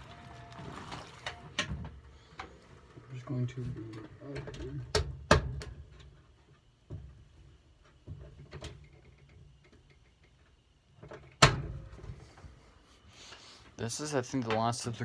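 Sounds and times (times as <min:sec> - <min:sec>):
washing machine humming: 0:00.0 - 0:05.4.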